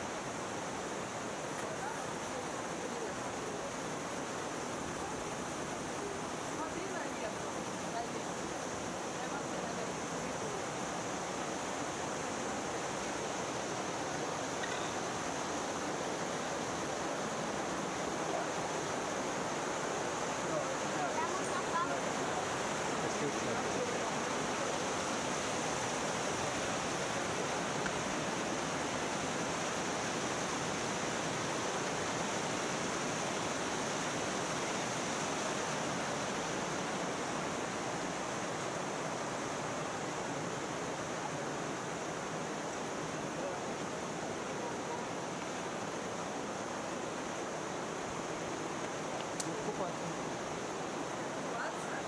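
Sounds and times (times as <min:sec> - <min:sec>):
stream rushing over rocks: 0:00.0 - 0:52.0.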